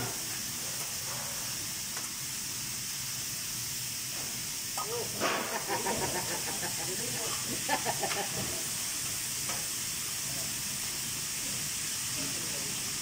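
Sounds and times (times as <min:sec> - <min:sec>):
vegetables sizzling in a pan: 0:00.0 - 0:13.0.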